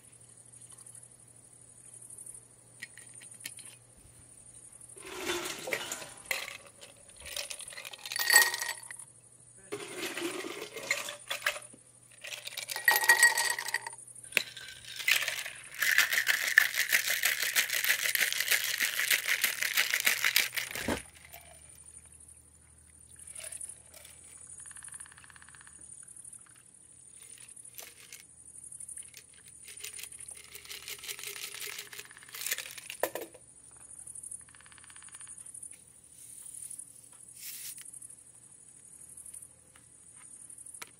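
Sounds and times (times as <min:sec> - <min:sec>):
ice clinking against glass: 0:05.0 - 0:09.0, 0:09.8 - 0:17.5
ice rattling in cocktail shaker: 0:05.0 - 0:09.0, 0:09.7 - 0:21.6, 0:29.0 - 0:33.3.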